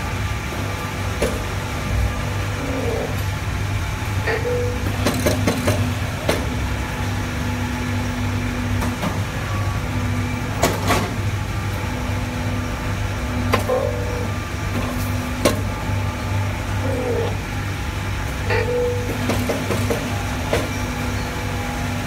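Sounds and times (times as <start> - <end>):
high machine tone: 0.0 - 22.0
press machine hum: 0.0 - 22.0
sharp mechanical clacks: 4.2 - 6.6.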